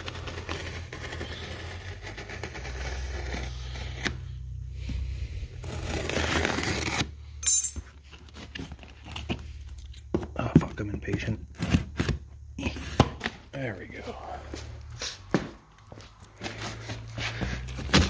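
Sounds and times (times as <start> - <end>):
knife slicing packing tape: 0.0 - 4.2, 5.7 - 7.1.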